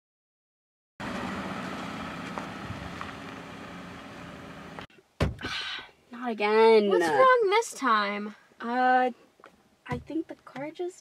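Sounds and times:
car engine hum and tyre noise: 1.0 - 4.9
loud sharp thump: 5.2 - 5.6.

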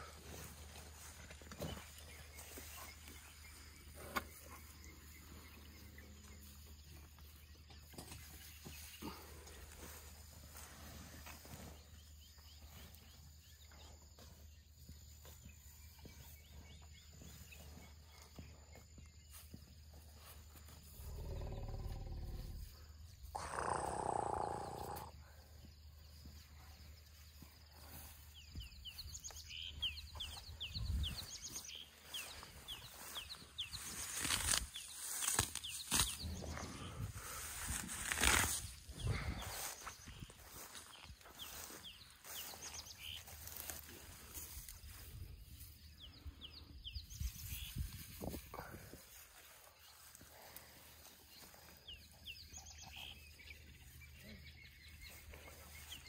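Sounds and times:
birds chirping: 0.0 - 56.0
elephant calling: 23.3 - 25.1.

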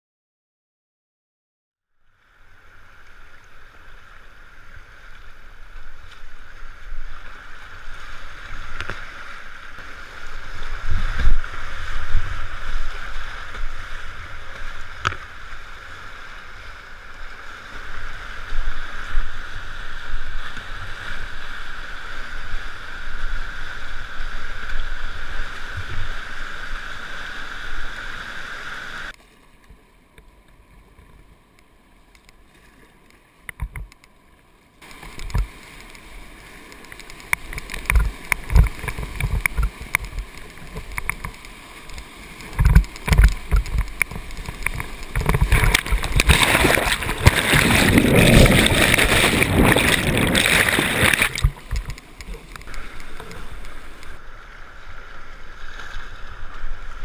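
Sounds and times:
rushing whitewater: 2.1 - 29.4, 34.7 - 57.0
rumbling surges on microphone: 41.9 - 57.0.

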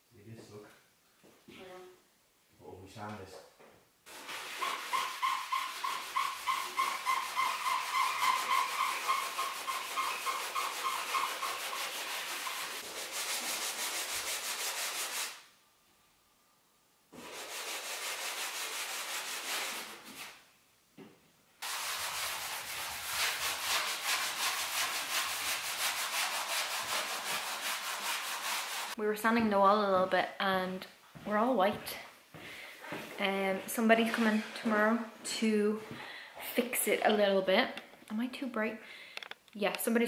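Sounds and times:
sandpaper scratching on wall: 4.1 - 15.5, 17.2 - 20.4, 21.6 - 29.0.

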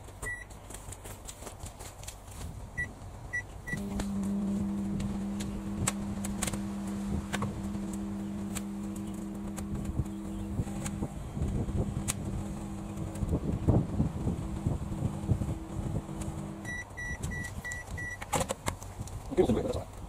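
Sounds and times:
microwave oven humming: 2.8 - 18.3
microwave keypad beeping: 3.3 - 3.9, 16.6 - 18.2
electrical arcing snapping clicks: 5.0 - 13.6.

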